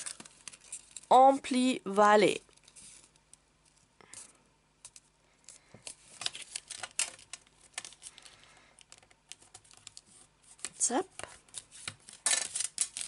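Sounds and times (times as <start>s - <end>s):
paper rustling and crackling: 0.0s - 1.1s, 5.5s - 13.0s.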